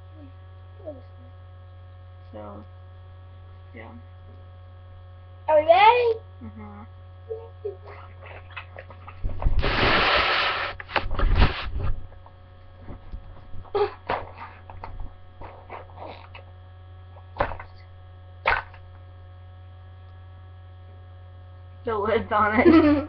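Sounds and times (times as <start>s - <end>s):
electrical mains hum: 0.0s - 23.0s
rustling and bumping of handling: 7.9s - 9.6s, 10.8s - 16.5s
faint knocks and rustles: 10.8s - 16.5s.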